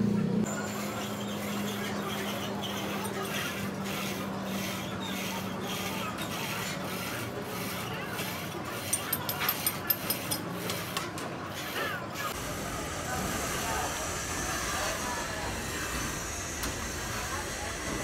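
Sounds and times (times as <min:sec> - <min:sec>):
rhythmic scraping: 0:00.5 - 0:12.4.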